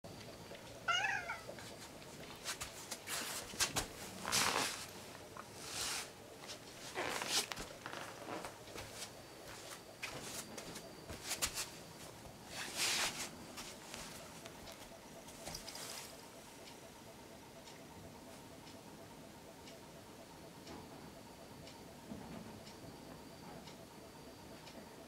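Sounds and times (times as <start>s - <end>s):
cat meowing: 0.9s - 1.5s
fur rubbing against camera: 2.4s - 4.9s, 6.8s - 8.5s.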